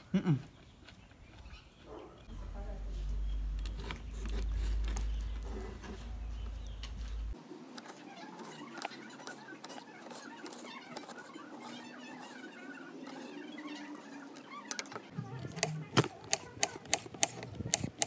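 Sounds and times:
low rumble: 2.3 - 7.4.

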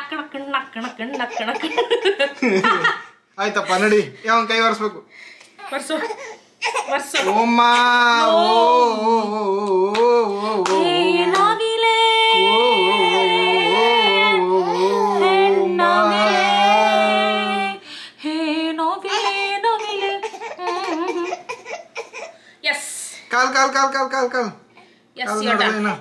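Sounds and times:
woman singing: 8.2 - 9.0, 10.4 - 21.4.

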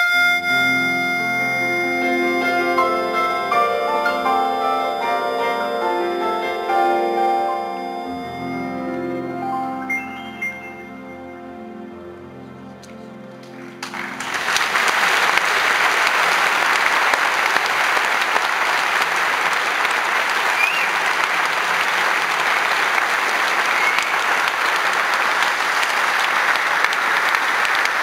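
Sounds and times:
music note: 0.0 - 14.4
audience applause: 1.4 - 7.8, 13.4 - 28.0.

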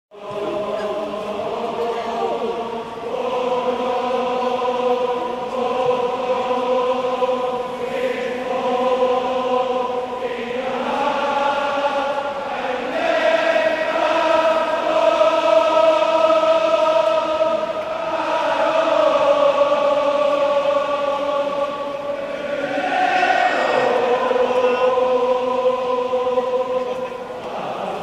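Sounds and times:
crowd chanting in long notes: 0.1 - 28.0.

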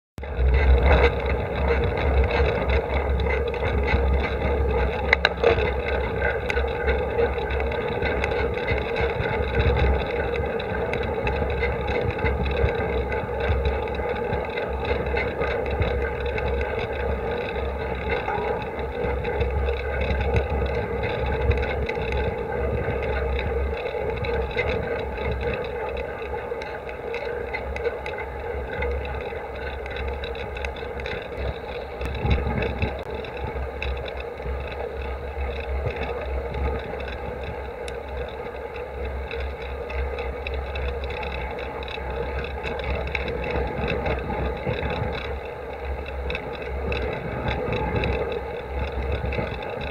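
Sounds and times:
bicycle tyres humming on asphalt: 0.2 - 49.9
wind rumble on microphone: 0.2 - 49.9.

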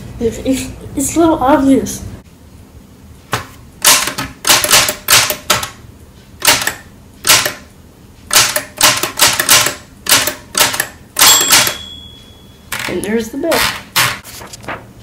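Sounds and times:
manual typewriter keys clacking: 3.8 - 5.7, 6.4 - 7.6, 8.3 - 11.9, 12.7 - 14.2.

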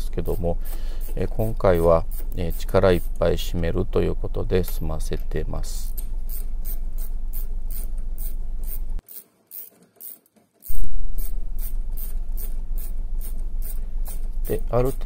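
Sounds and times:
ratchet wrench clicking: 0.3 - 3.1, 5.9 - 15.0.

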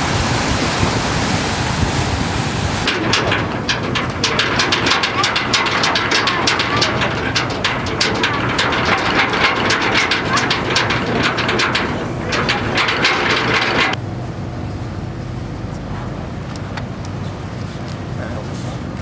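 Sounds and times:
ship engines droning: 0.0 - 19.0
sharp clicks and crackles: 2.9 - 14.0.

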